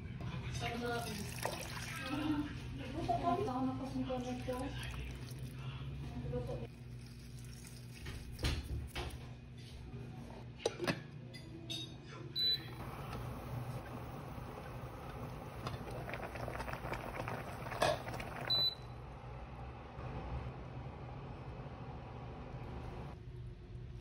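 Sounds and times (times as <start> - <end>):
water boiling in pot: 0.8 - 2.5, 3.9 - 5.8, 6.4 - 9.1, 12.6 - 19.0
cooktop beeping: 11.7 - 19.0.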